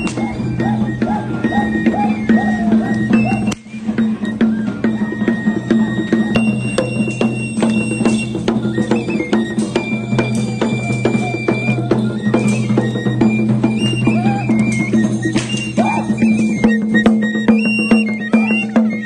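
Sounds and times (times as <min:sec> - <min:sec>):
bells clanking: 0:00.0 - 0:19.0
cane flute melody: 0:00.0 - 0:19.0
hand drum beating: 0:05.6 - 0:19.0.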